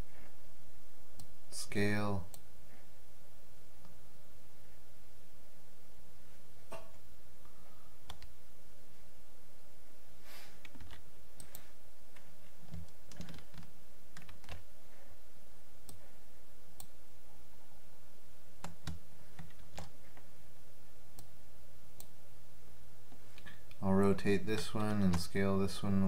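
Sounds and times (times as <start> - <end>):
low steady hum: 0.0 - 26.0
computer mouse clicks: 8.0 - 8.3, 10.6 - 14.6.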